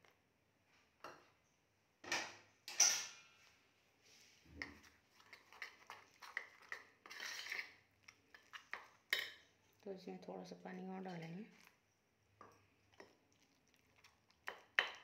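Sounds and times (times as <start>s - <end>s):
spoon clinking steel bowl: 2.7s - 3.2s
spoon stirring batter: 4.1s - 15.0s.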